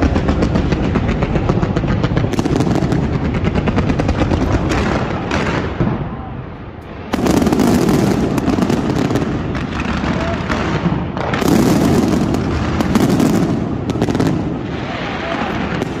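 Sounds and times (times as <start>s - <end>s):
continuous rumble: 0.0s - 11.4s
fireworks cracking and banging: 0.0s - 16.0s.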